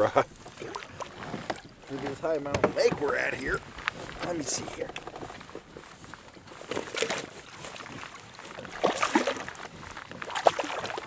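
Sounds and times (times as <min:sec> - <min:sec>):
water splashing and knocking: 0:00.5 - 0:03.6, 0:06.7 - 0:11.0
fish thrashing in water: 0:06.5 - 0:11.0.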